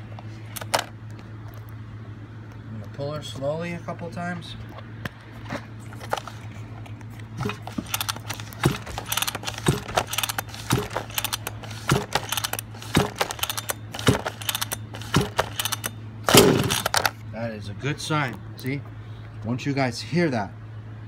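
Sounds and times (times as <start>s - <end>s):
pull starter clattering: 7.4s - 17.2s.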